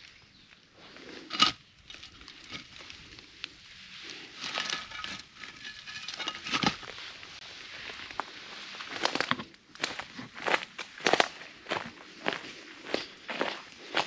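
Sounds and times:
pine needles and twigs crackling: 0:00.0 - 0:12.3
iron plate being handled: 0:01.3 - 0:02.9, 0:04.4 - 0:07.0.

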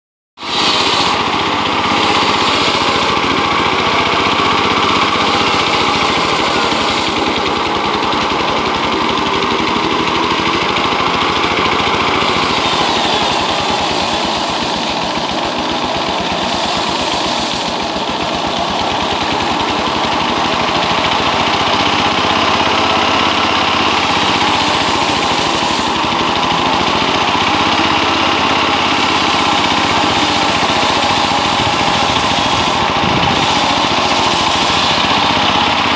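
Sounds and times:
diesel engine and circular saw cutting: 0:00.4 - 0:35.9.

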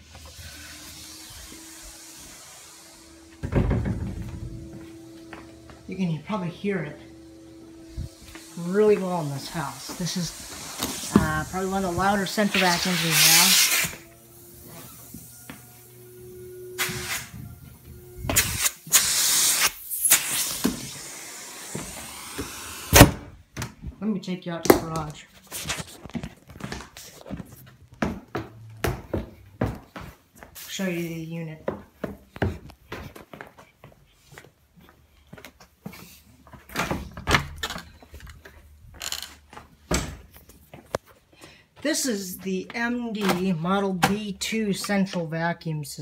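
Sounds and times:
vacuum air rushing through hose: 0:00.0 - 0:03.5, 0:07.1 - 0:23.3
door opening and shutting: 0:03.2 - 0:05.2, 0:16.4 - 0:18.8, 0:21.7 - 0:23.8, 0:36.7 - 0:38.4.

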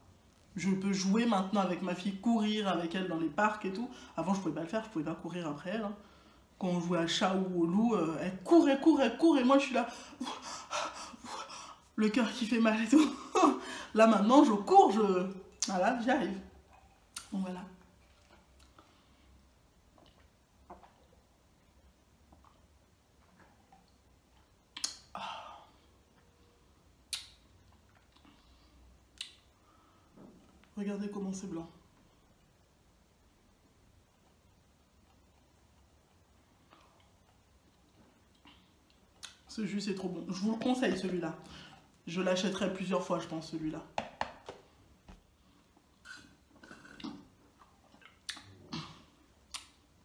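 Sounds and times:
mouth clicks and lip smacks: 0:16.7 - 0:17.4, 0:19.9 - 0:21.2, 0:23.3 - 0:25.2, 0:27.0 - 0:28.4, 0:29.1 - 0:29.5, 0:34.2 - 0:39.5, 0:46.0 - 0:50.0.

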